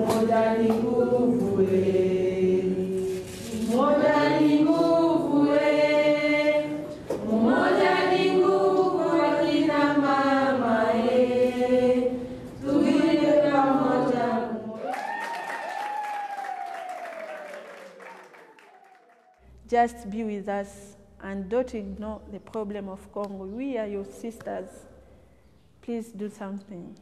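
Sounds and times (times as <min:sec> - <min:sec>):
women singing in chorus: 0:00.0 - 0:14.8.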